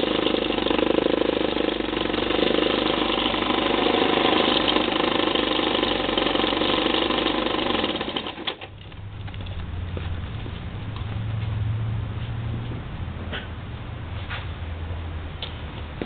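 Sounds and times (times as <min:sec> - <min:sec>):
snowblower engine running: 0:00.0 - 0:11.5
low hum: 0:08.6 - 0:16.0.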